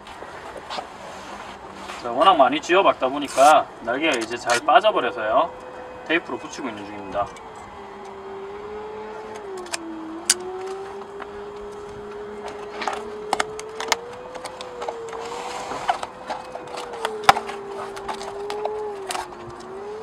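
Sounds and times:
wavering hum: 1.3s - 20.0s
tape unrolling rasp: 3.2s - 4.7s
tape crackling: 7.3s - 20.0s.

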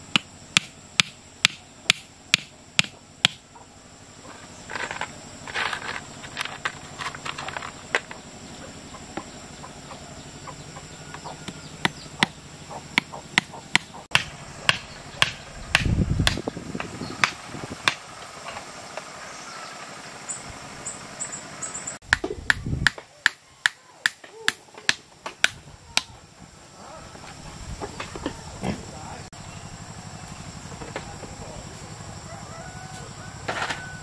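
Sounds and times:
hammer striking wooden stake: 0.0s - 3.4s, 11.1s - 18.0s, 22.0s - 26.1s.

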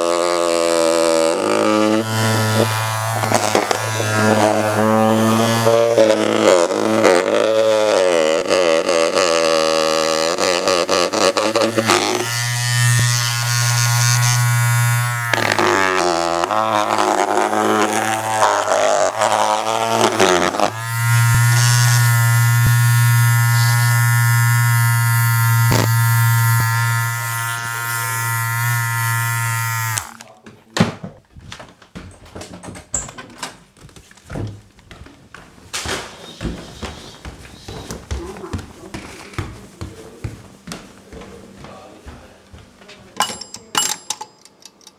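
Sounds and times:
electric motor buzzing: 0.0s - 30.3s.

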